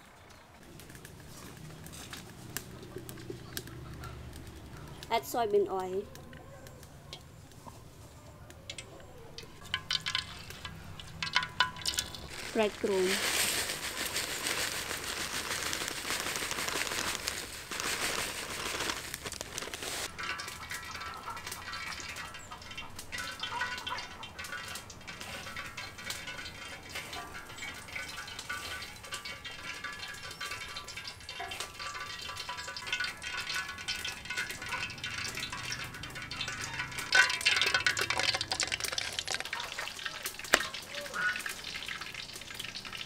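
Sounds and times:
hands rustling in crumbs: 11.3 - 20.1
breadcrumbs pouring into tray: 11.8 - 20.1, 36.1 - 41.0.

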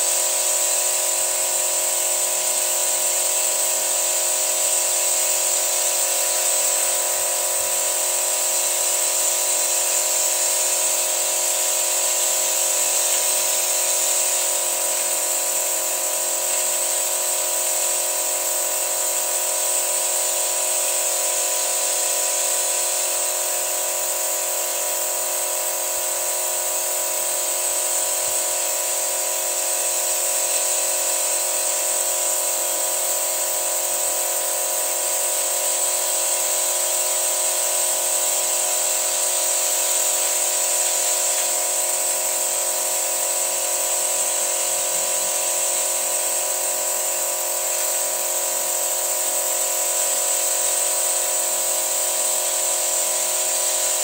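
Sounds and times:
steady hiss: 36.8 - 54.0.

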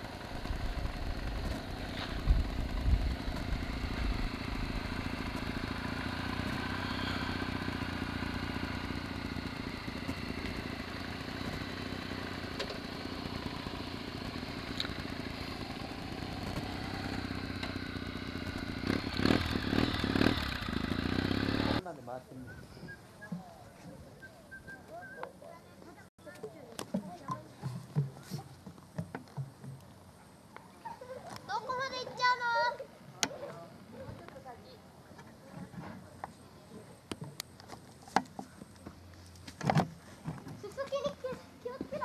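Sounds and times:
motorcycle engine running: 0.0 - 21.8.

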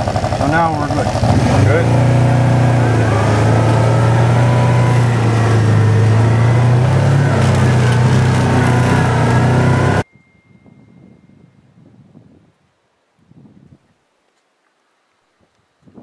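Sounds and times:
vehicle engine running steadily: 0.0 - 10.0.

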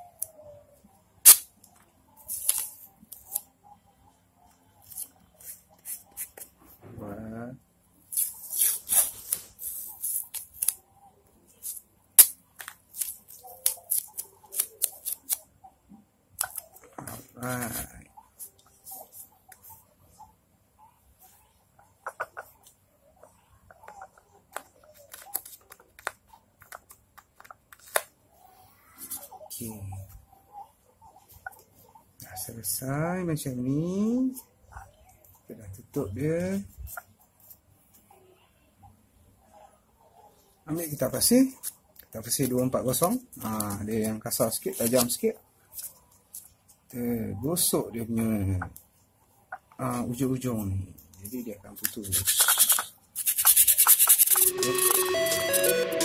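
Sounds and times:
sharp crack: 1.2 - 1.5
masking tape crinkling: 2.2 - 3.5, 8.1 - 10.8, 11.5 - 15.4, 44.6 - 47.0, 51.0 - 56.0
tape rasping: 51.8 - 56.0.

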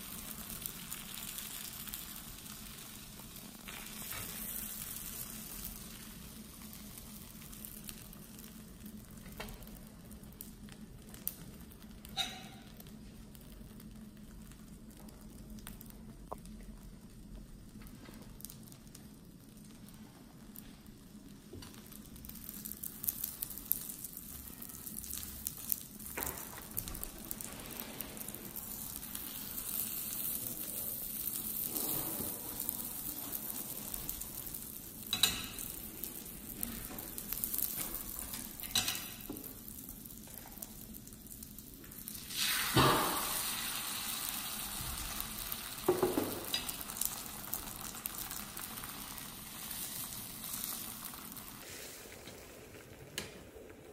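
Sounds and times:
egg sizzling in a pan: 0.0 - 53.9
egg poured into pan: 42.0 - 53.9.

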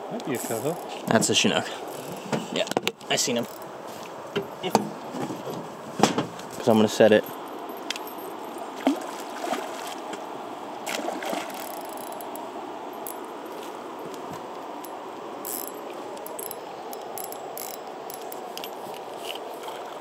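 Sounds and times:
river water rushing and lapping: 0.0 - 5.9, 6.8 - 20.0
short splashes: 8.7 - 10.2, 10.8 - 11.7.

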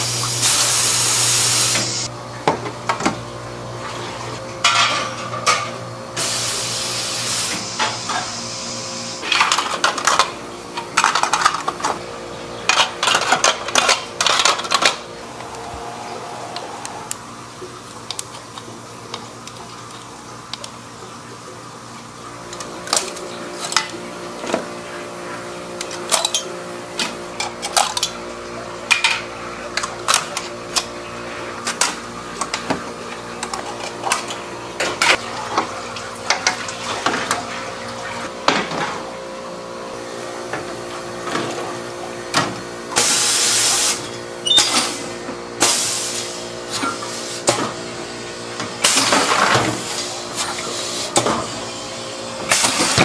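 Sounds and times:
machinery humming: 14.1 - 19.5.

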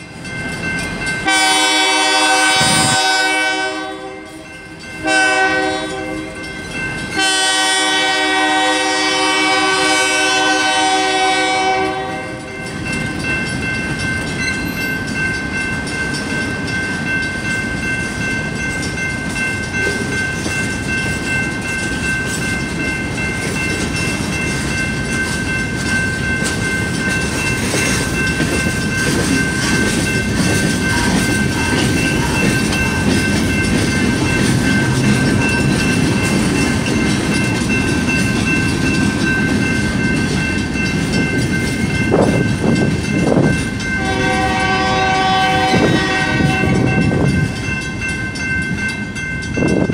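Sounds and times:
train cars rumbling and clattering: 0.0 - 49.9
train horn blast: 1.2 - 4.4, 5.0 - 6.4, 7.2 - 12.4, 44.0 - 47.1.

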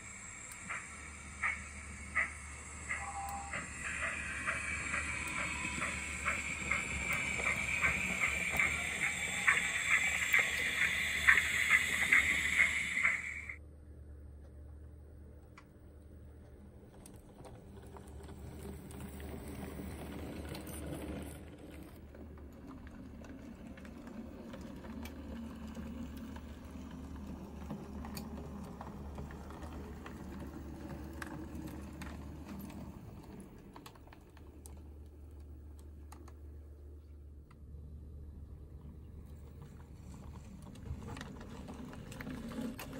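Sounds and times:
model train motor whirring: 0.0 - 13.6
wheels clicking on rails: 0.0 - 13.6, 16.1 - 42.9.

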